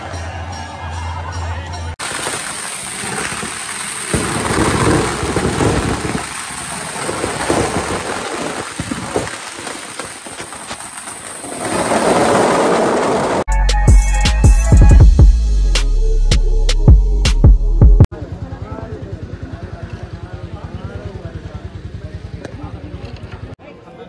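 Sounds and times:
loud rushing noise with crackles: 2.0 - 13.5.

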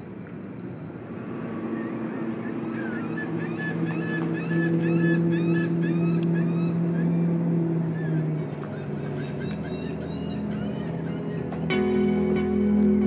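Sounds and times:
steady engine hum: 0.0 - 13.0
bird chirping: 1.7 - 11.8.

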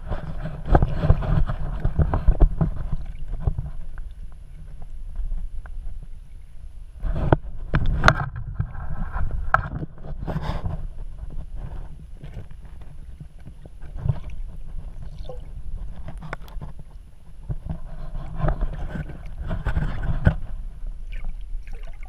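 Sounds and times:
muffled underwater water sloshing: 0.0 - 22.0
water splashing: 13.9 - 15.8, 18.8 - 22.0.

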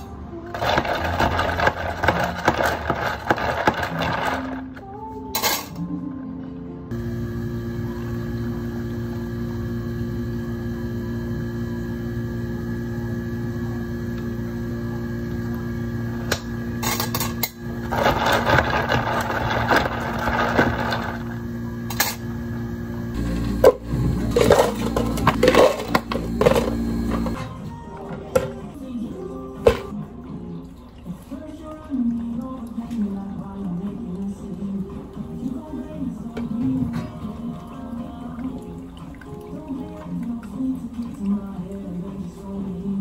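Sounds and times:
ice clattering into plastic cup: 0.5 - 4.8, 16.8 - 21.3, 23.6 - 27.4
machine hum: 6.9 - 27.5.

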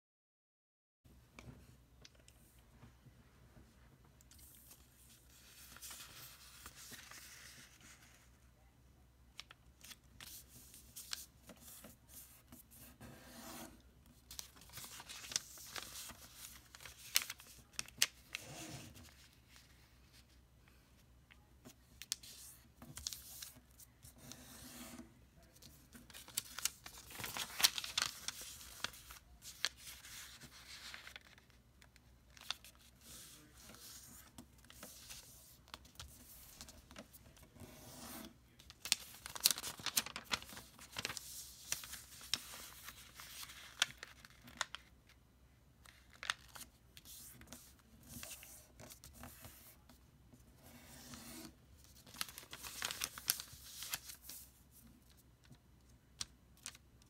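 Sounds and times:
paper rustling and crinkling: 4.4 - 8.3, 14.1 - 20.4, 22.0 - 45.0, 45.8 - 50.0, 50.8 - 55.6.

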